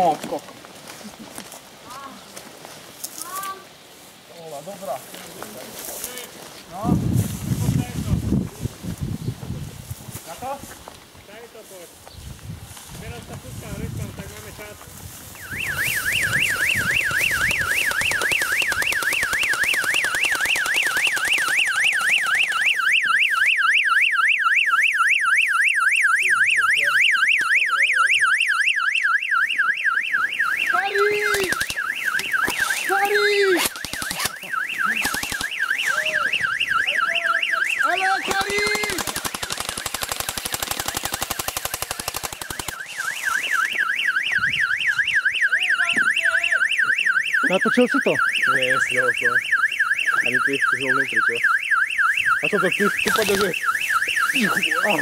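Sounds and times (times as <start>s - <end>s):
electronic alarm siren warbling: 15.3s - 55.0s.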